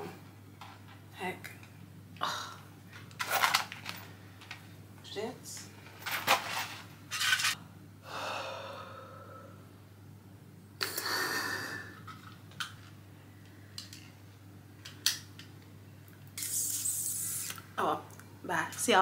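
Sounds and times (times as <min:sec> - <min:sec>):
handling rustles and knocks: 0:02.9 - 0:04.7
person breathing out: 0:08.0 - 0:09.7, 0:10.8 - 0:12.0.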